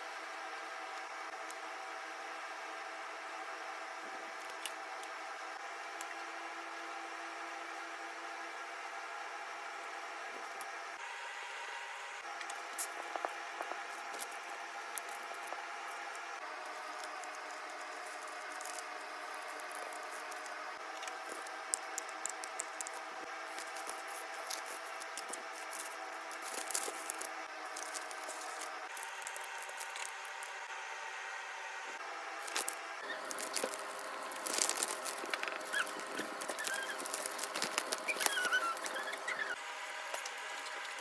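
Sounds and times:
steady background hum: 0.0s - 41.0s
paper and plastic crinkling: 12.5s - 30.6s, 32.4s - 39.6s.

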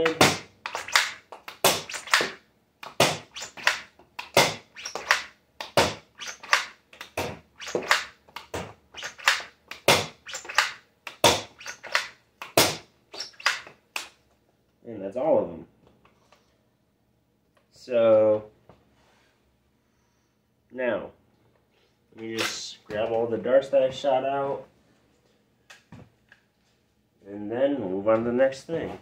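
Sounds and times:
toy blaster firing clacks: 0.7s - 5.3s, 6.2s - 8.2s, 9.0s - 13.6s.

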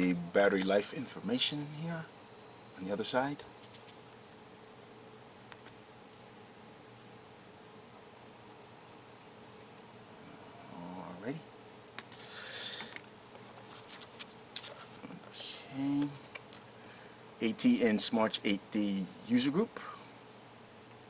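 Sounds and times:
insects chorus: 0.0s - 21.0s
papers rustling: 12.8s - 15.0s.

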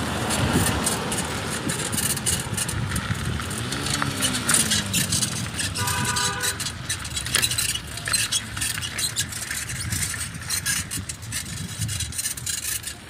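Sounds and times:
bicycle rattling over dirt track: 0.0s - 13.0s
brief horn-like tone: 5.8s - 6.6s.

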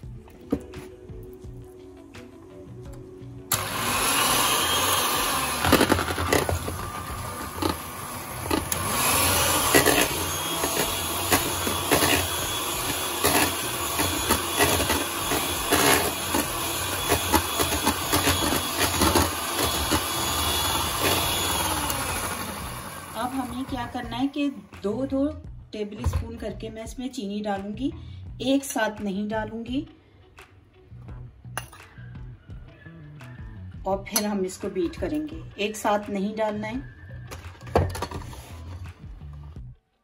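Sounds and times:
electric hand mixer whipping butter: 3.5s - 24.3s.

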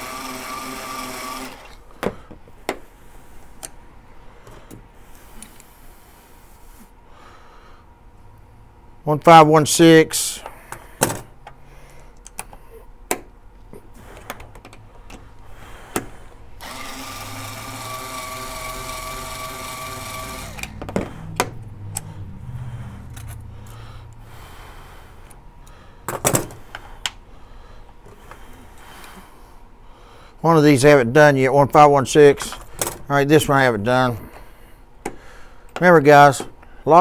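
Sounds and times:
electric driver whining: 0.0s - 1.9s, 16.6s - 22.2s
low rumble with clicks: 20.6s - 24.3s.

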